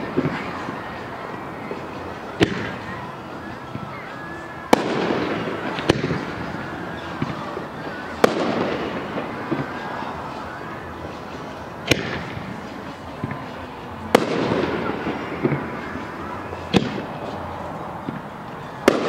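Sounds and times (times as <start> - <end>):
firework crackling: 0.0 - 19.0
firework booms: 2.4 - 2.8, 4.7 - 7.4, 8.2 - 9.9, 11.9 - 12.4, 14.1 - 17.1.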